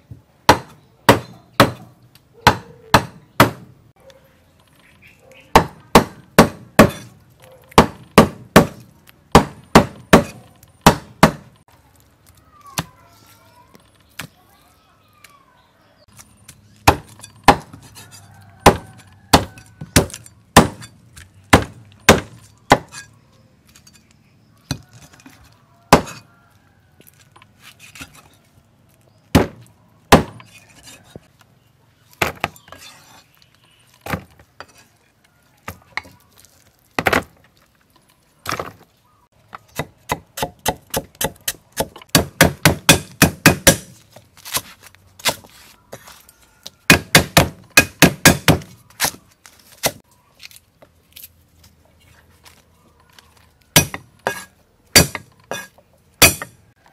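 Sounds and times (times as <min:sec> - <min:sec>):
cleaver chopping on wooden block: 0:00.5 - 0:03.7, 0:05.5 - 0:11.6, 0:16.8 - 0:18.0, 0:18.6 - 0:20.9, 0:21.5 - 0:23.0, 0:25.9 - 0:26.2, 0:29.3 - 0:30.6, 0:39.7 - 0:45.5, 0:46.9 - 0:49.2, 0:53.8 - 0:56.6.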